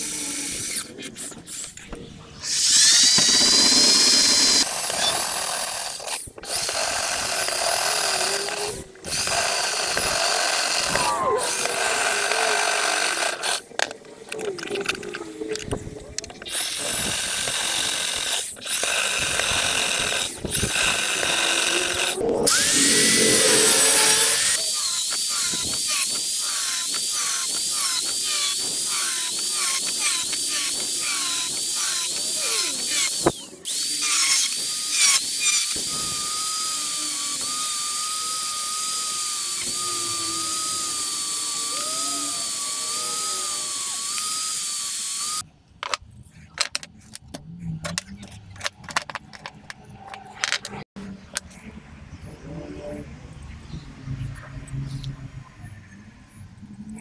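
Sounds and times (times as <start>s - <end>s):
angle grinder cutting steel: 2.4s - 13.9s, 16.4s - 45.4s
electric drill boring through steel: 2.4s - 13.9s, 16.4s - 45.5s.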